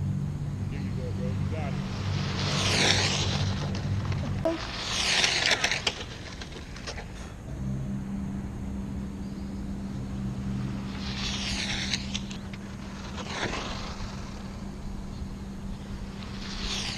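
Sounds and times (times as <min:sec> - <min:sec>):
steady low hum: 0:00.0 - 0:16.9
rc car motor whine: 0:01.3 - 0:16.9.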